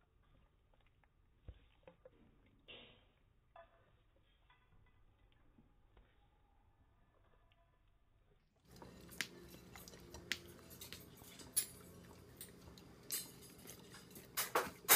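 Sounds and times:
dog licking and chewing: 0.1s - 2.7s, 8.7s - 14.9s
low steady hum: 4.2s - 14.9s.

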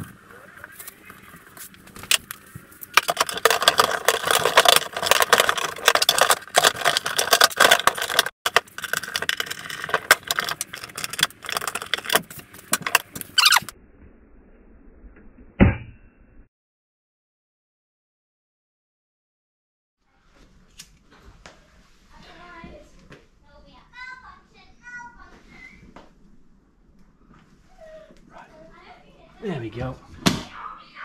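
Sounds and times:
plastic lid crackling and scraping: 2.0s - 13.7s.

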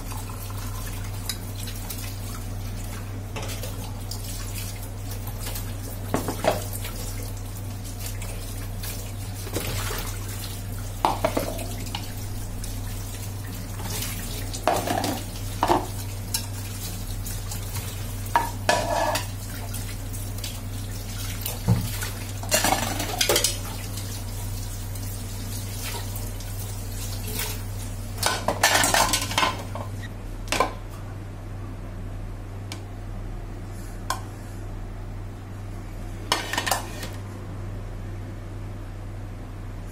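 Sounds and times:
tap water splashing: 1.0s - 24.2s
plastic dishes clattering in sink: 6.1s - 6.7s, 11.0s - 12.0s, 14.6s - 16.5s, 18.3s - 19.4s, 21.6s - 23.7s, 28.2s - 30.8s, 36.3s - 37.2s.

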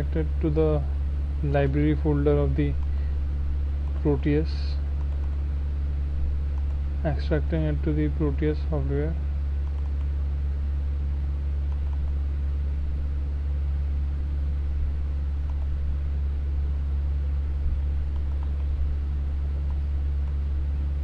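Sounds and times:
low electrical hum: 0.0s - 21.0s
faint clicks: 3.8s - 4.1s, 5.0s - 5.4s, 9.6s - 10.1s, 11.7s - 12.2s, 18.1s - 18.7s.

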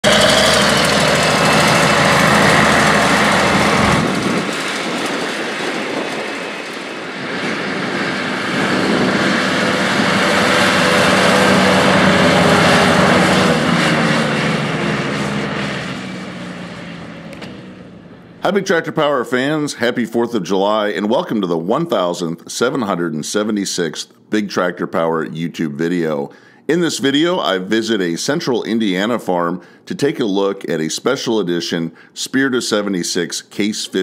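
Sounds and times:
tractor diesel engine driving by: 0.0s - 20.1s.

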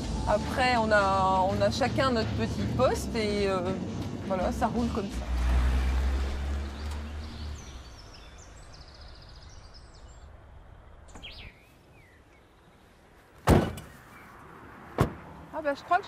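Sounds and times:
bird chirps: 6.6s - 12.9s
van door slamming: 13.4s - 14.0s, 15.0s - 15.2s.

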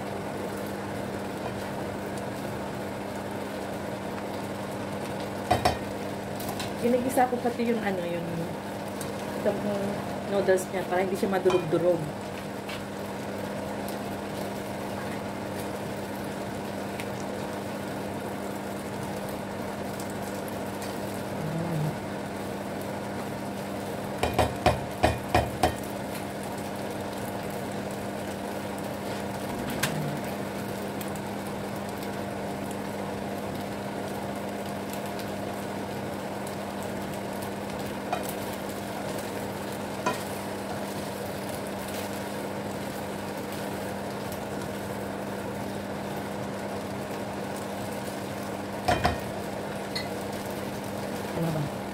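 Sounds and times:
noodles frying in a wok: 0.0s - 51.9s
steady hum: 20.5s - 34.3s.

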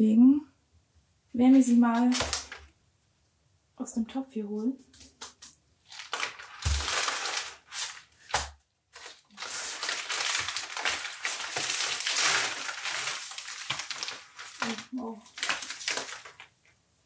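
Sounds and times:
paper rustling: 1.5s - 2.7s, 4.9s - 16.8s
plastic pot crackling: 1.5s - 2.7s, 5.0s - 16.7s.

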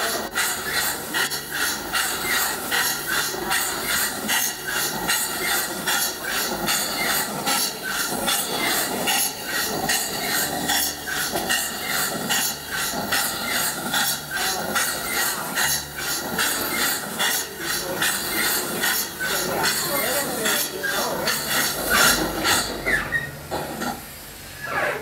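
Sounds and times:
hissing steam: 0.0s - 25.0s
steam engine chuffing: 0.0s - 25.0s.

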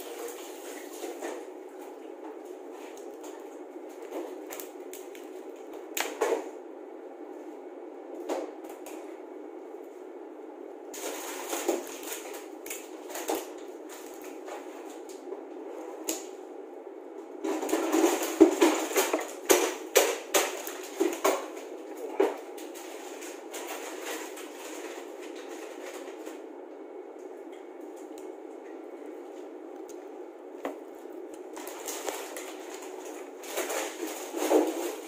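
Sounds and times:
steady hum: 0.0s - 35.0s.

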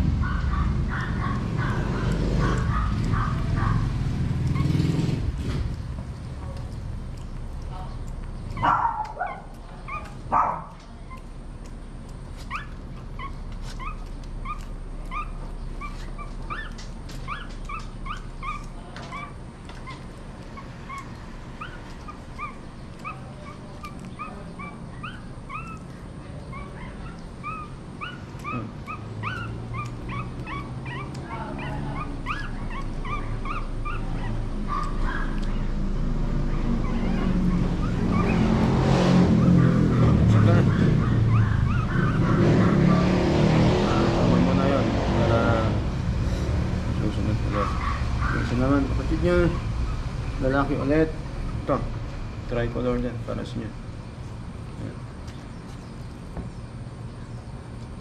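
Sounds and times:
puppies whimpering: 8.0s - 43.2s, 47.0s - 50.3s.

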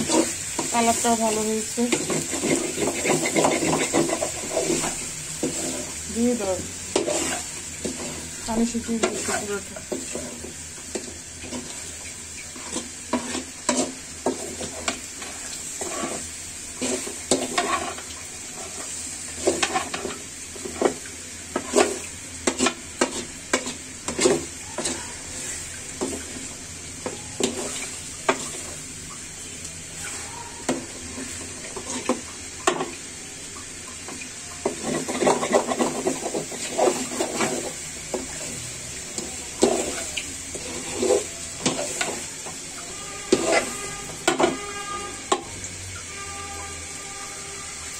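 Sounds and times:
food sizzling: 0.0s - 47.9s
metal spatula scraping pan: 1.8s - 11.9s, 12.5s - 26.3s, 30.0s - 32.9s, 34.6s - 38.6s, 39.2s - 45.5s.

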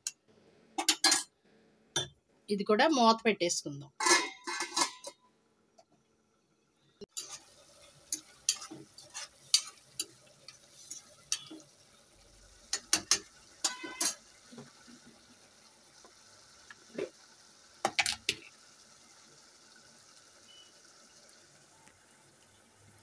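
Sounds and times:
spoon clinking and scraping pan: 0.8s - 1.3s, 4.0s - 5.2s, 7.1s - 7.5s, 8.1s - 11.6s, 12.7s - 14.2s
curry sizzling faintly: 6.7s - 23.0s.

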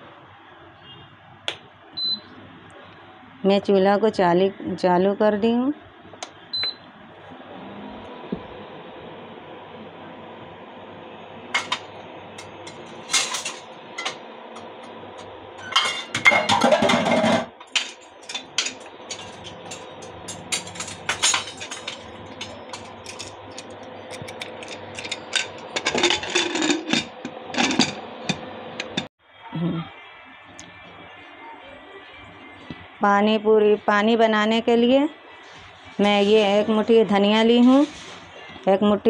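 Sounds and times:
cooktop electric hum: 0.0s - 39.0s
clattering scrape: 15.9s - 28.0s.

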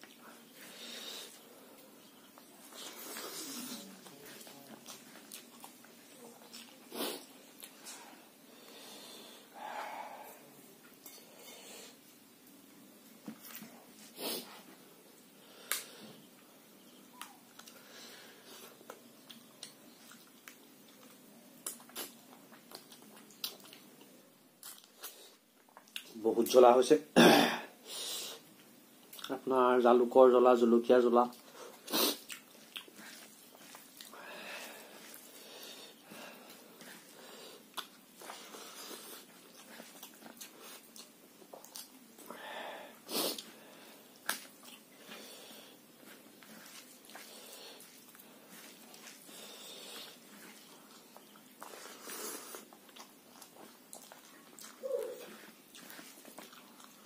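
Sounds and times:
person chewing food: 0.0s - 12.6s, 13.5s - 26.2s, 28.4s - 29.4s, 31.3s - 57.0s
hissing breaths: 0.3s - 1.9s, 6.9s - 10.6s
lip smacks and mouth clicks: 17.2s - 17.8s, 18.8s - 23.9s, 24.6s - 26.2s, 32.1s - 34.2s, 37.7s - 38.5s, 39.2s - 42.3s, 44.2s - 45.2s, 52.5s - 57.0s.

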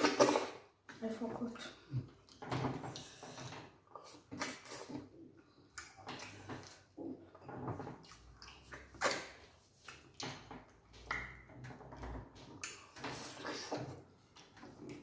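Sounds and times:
wet chewing and lip smacking: 4.0s - 6.9s, 8.0s - 10.4s.

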